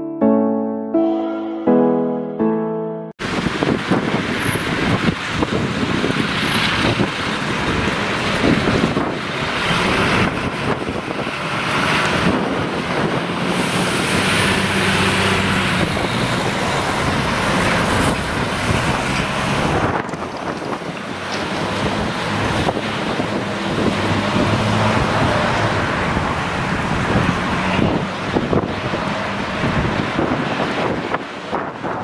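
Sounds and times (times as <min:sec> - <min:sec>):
tyre and road noise: 0:03.2 - 0:32.0
wind buffeting microphone: 0:03.2 - 0:32.0
fire engine diesel engine driving past: 0:04.2 - 0:20.1.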